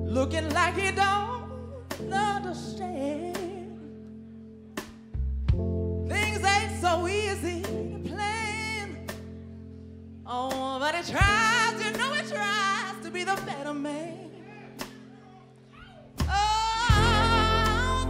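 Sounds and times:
woman singing wordless vibrato: 0.0s - 4.0s, 6.1s - 9.0s, 10.3s - 14.5s, 16.3s - 18.0s.

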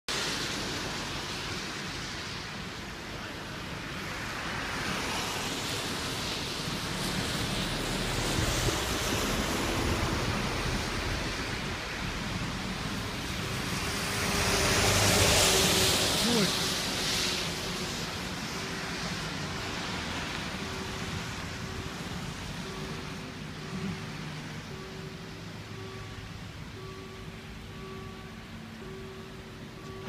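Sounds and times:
traffic on a wet road: 0.1s - 30.0s
lorry passing: 6.4s - 30.0s.

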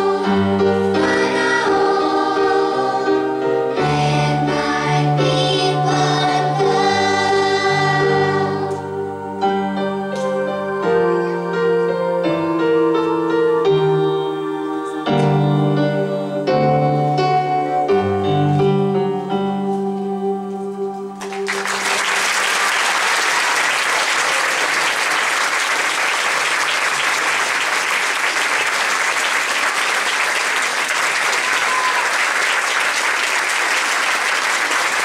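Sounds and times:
piano chords ringing: 0.0s - 22.0s
audience applauding: 21.2s - 35.0s.

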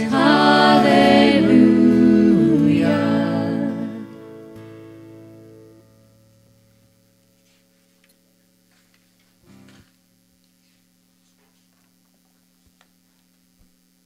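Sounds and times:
guitar chord ringing out: 0.0s - 8.5s.

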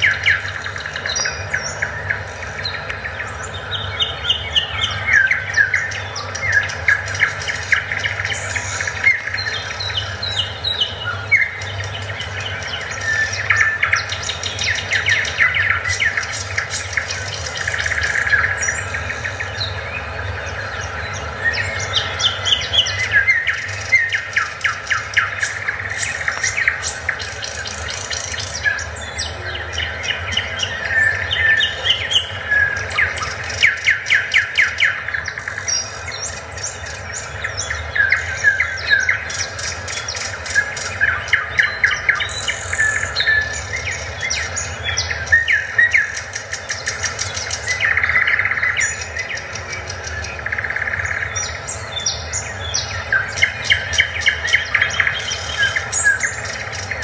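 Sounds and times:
birds chirping and chattering: 0.0s - 57.0s
steady low hum: 0.0s - 57.0s.

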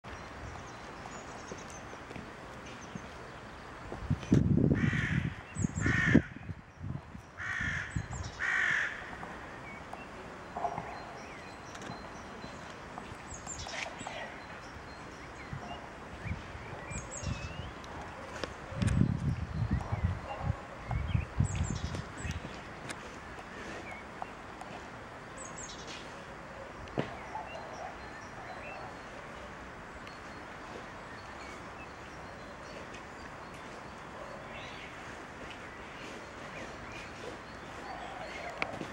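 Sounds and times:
outdoor background hiss: 0.1s - 38.9s
crow cawing: 4.8s - 6.4s, 7.4s - 9.1s
bird chirps: 25.4s - 38.9s.

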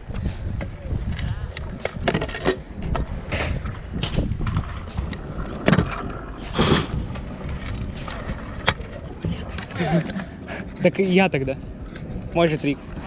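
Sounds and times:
scooter wheels rolling on asphalt: 0.0s - 13.0s
scooter deck clacking on ground: 1.5s - 10.2s.

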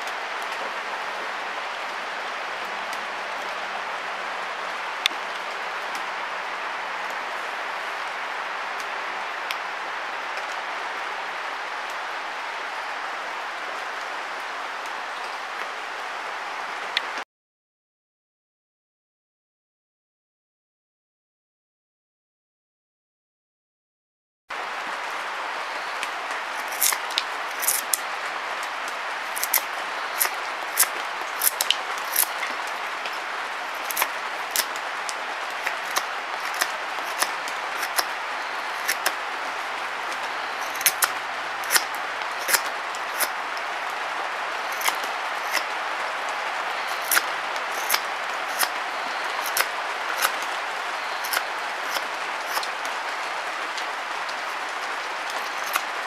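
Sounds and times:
knife carving wood clicks: 26.6s - 28.0s, 29.3s - 32.5s, 33.8s - 34.8s, 35.5s - 39.2s, 40.6s - 43.4s, 44.7s - 45.7s, 46.9s - 50.6s, 51.2s - 52.7s, 55.3s - 55.9s.

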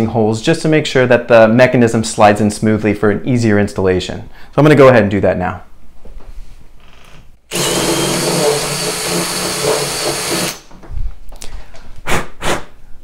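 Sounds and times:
cordless drill with hole saw: 7.5s - 10.7s.

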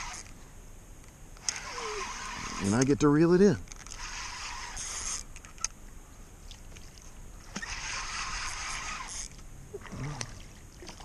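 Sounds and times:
fishing reel cranking: 0.0s - 0.3s, 1.4s - 3.1s, 3.7s - 5.7s, 7.5s - 9.4s.

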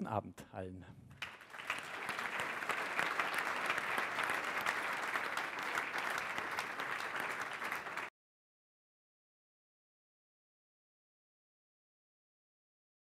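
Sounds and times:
audience applauding: 1.2s - 8.1s.

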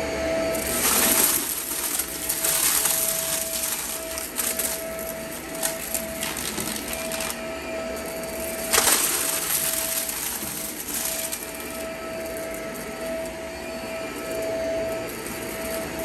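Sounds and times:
vacuum cleaner running: 0.0s - 16.0s
debris clicks in vacuum: 0.5s - 16.0s.

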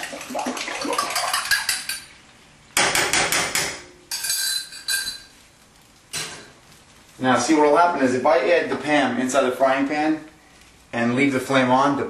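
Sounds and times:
metal cookware clanking on stove: 1.0s - 2.1s, 2.8s - 5.3s.

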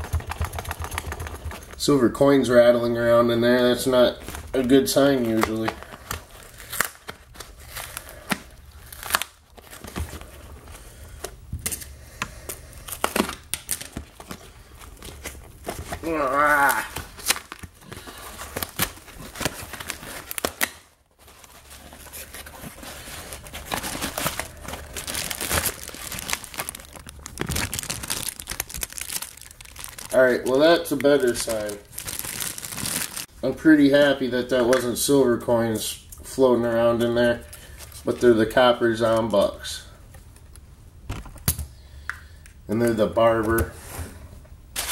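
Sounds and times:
packing paper rustling: 3.8s - 33.3s
cardboard box tearing: 21.4s - 30.1s.

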